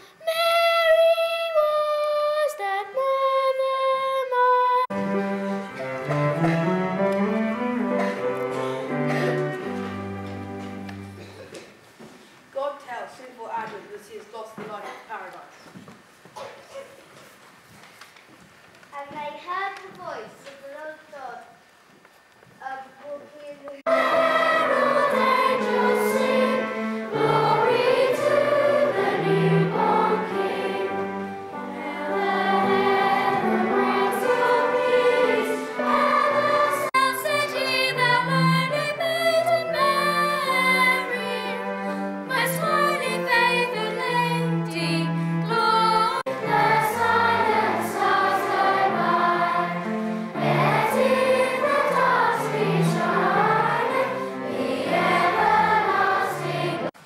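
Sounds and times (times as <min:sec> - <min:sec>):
children's choir singing: 0:00.4 - 0:11.4, 0:23.8 - 0:57.0.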